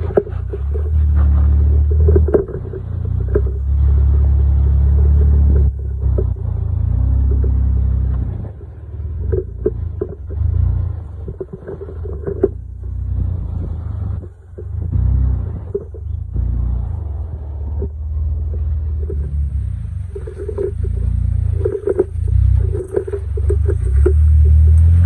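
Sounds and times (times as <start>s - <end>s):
knocks and clicks from rocks: 0.0s - 6.5s, 11.2s - 12.7s, 20.2s - 25.0s
engine rumbling: 0.0s - 25.0s.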